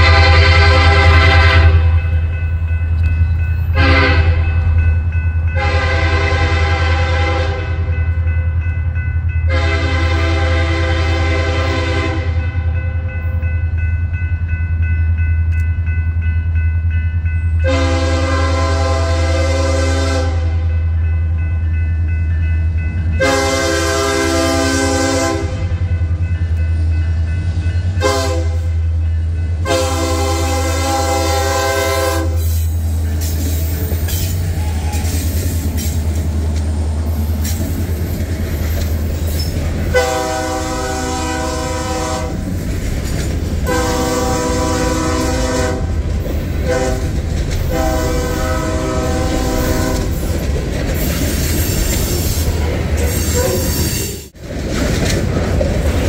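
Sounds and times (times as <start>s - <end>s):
locomotive air horn blasts: 0.0s - 2.1s, 3.7s - 4.6s, 5.5s - 8.0s, 9.5s - 12.7s, 17.6s - 20.8s, 23.2s - 25.9s, 28.0s - 28.8s, 29.6s - 32.6s, 39.9s - 42.4s, 43.6s - 46.0s, 46.6s - 47.1s, 47.7s - 50.2s, 53.2s - 54.0s
passing train rumble: 0.0s - 56.0s
tank cars clattering over rails: 54.4s - 56.0s.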